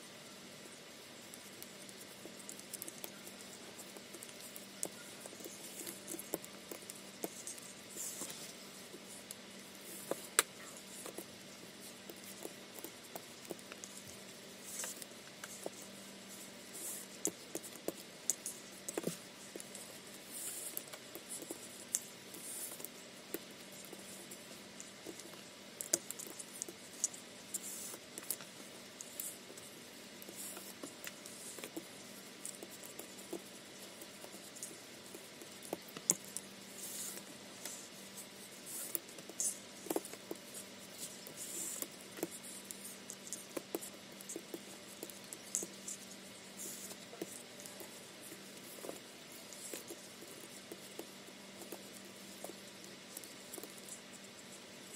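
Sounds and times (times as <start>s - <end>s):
faint steady hum: 0.0s - 54.9s
small sharp ticks and taps: 24.8s - 29.6s.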